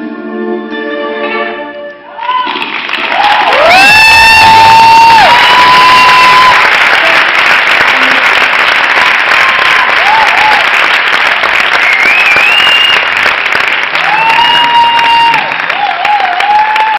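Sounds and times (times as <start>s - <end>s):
high-pitched crowd calls: 2.2s - 6.7s
audience applauding: 2.2s - 16.9s.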